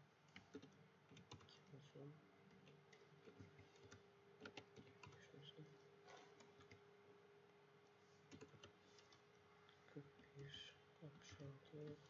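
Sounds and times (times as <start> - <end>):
faint hum: 0.0 - 12.0
keyboard keystrokes: 0.3 - 1.6, 2.5 - 5.2, 6.2 - 6.8, 8.3 - 9.2.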